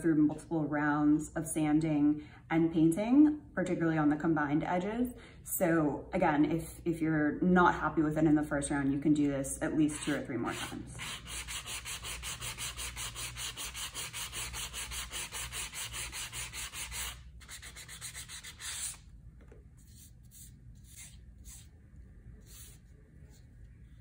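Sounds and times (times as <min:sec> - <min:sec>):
sanding block rubbing leather: 0:10.0 - 0:19.0.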